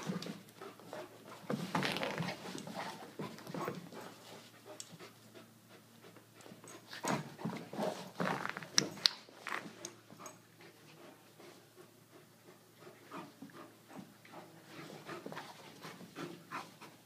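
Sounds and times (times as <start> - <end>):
dogs panting: 2.3 - 8.1, 9.7 - 17.0.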